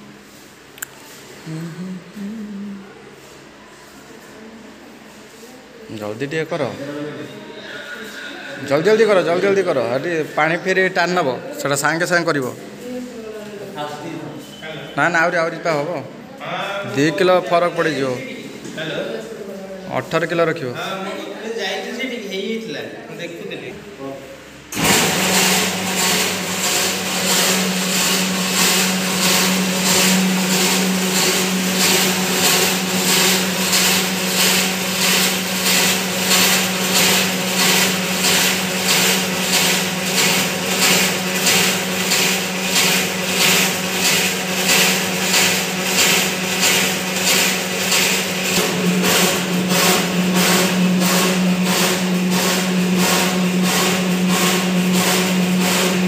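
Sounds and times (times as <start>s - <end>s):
dough mixer motor hum: 24.7s - 56.0s
rhythmic churning pulse: 25.0s - 56.0s.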